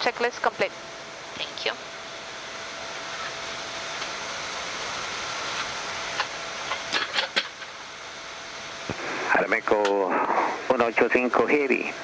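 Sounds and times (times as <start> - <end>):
faint steady hum: 0.0 - 12.0
rushing air hiss in a cockpit: 2.8 - 12.0.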